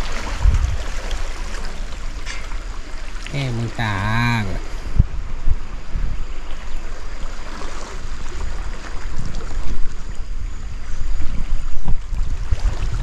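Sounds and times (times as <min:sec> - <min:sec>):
river floodwater rushing: 0:00.0 - 0:10.4
wind on microphone: 0:00.0 - 0:13.0.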